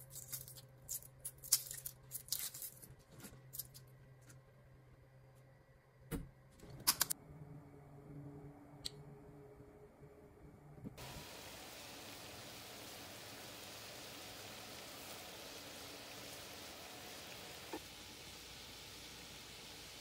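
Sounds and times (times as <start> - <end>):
water boiling in a pan: 11.0 - 20.0.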